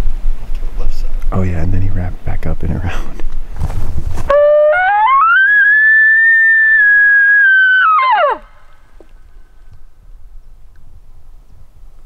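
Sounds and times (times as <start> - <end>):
elk bugling: 4.3 - 9.1.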